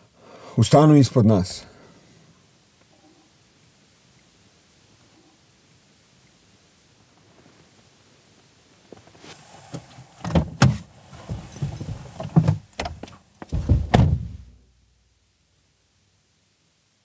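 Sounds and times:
heavy low thumps and knocks: 0:11.3 - 0:14.5.

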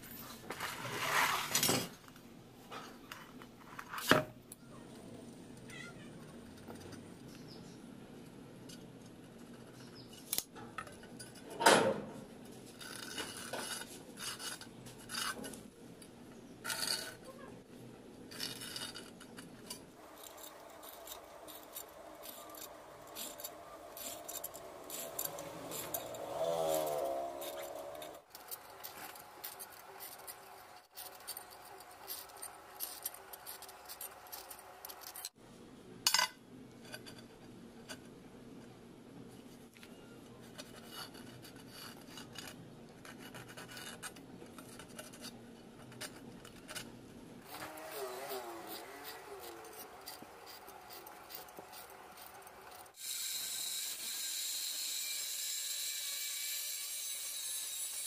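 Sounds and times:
scraping on steel: 0:00.1 - 0:01.9, 0:08.7 - 0:15.7, 0:16.6 - 0:17.6, 0:18.3 - 0:35.4, 0:40.4 - 0:53.4.

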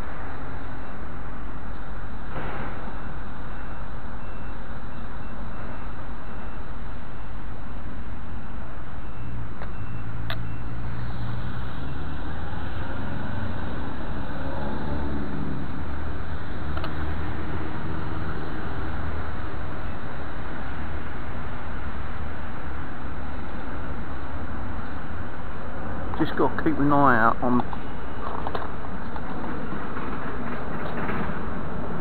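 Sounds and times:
vehicle engine droning past: 0:09.3 - 0:26.6
steady rushing noise: 0:10.8 - 0:32.0.

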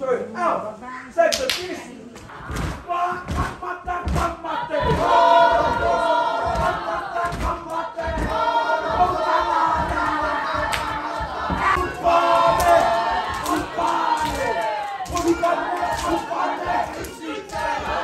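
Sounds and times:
feet stamping: 0:02.2 - 0:18.0
group chanting in shouted unison: 0:02.3 - 0:18.0
hands slapping bodies: 0:09.8 - 0:17.8.

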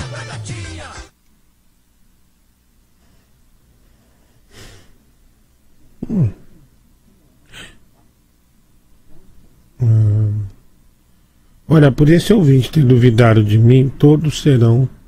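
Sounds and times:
man breathing: 0:03.0 - 0:05.0
man sighing: 0:09.8 - 0:10.5.

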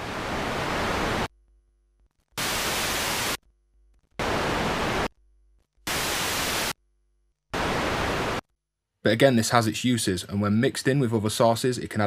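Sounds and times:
white noise hiss: 0:00.0 - 0:01.3, 0:02.4 - 0:03.4, 0:04.2 - 0:05.1, 0:05.9 - 0:06.8, 0:07.6 - 0:08.4.

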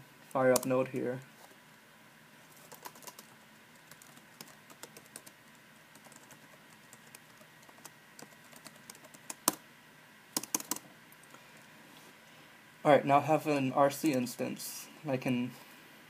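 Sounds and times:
keyboard key clicks: 0:10.4 - 0:10.8.

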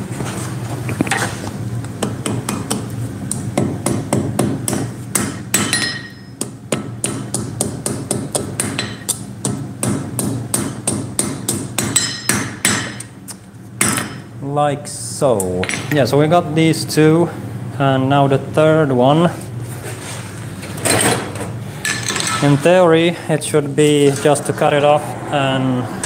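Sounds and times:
hammer striking iron on anvil: 0:03.6 - 0:13.1, 0:13.8 - 0:14.3
anvil ringing: 0:05.5 - 0:06.4, 0:12.0 - 0:13.0.

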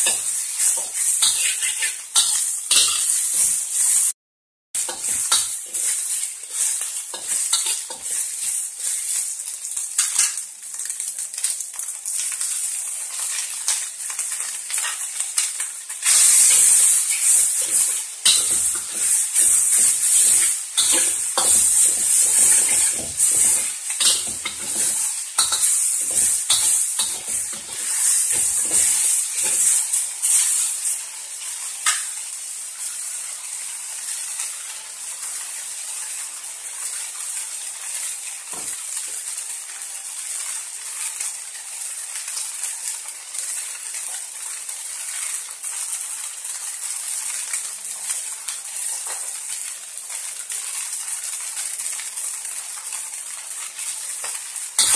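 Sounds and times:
spatula clanking against wok: 0:00.0 - 0:03.2, 0:17.6 - 0:19.5, 0:20.2 - 0:29.7
food sizzling in wok: 0:00.0 - 0:04.2, 0:04.8 - 0:54.9.

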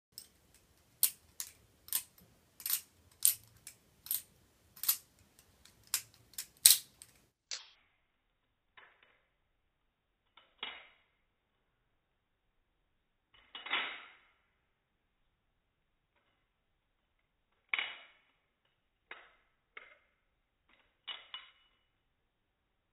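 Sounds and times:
butterfly knife clacking: 0:00.2 - 0:07.6.

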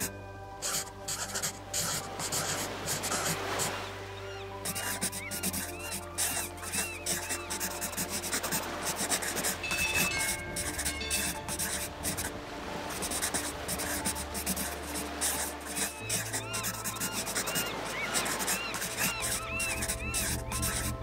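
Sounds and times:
pencil scratching on paper: 0:00.0 - 0:03.4, 0:04.6 - 0:12.3, 0:13.0 - 0:21.0
background music with low notes: 0:00.0 - 0:21.0
high bell-like tones: 0:09.6 - 0:12.2.

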